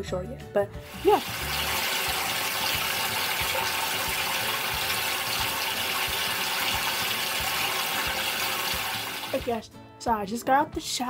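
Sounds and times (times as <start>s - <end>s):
tap water running and splashing: 0.8s - 9.6s.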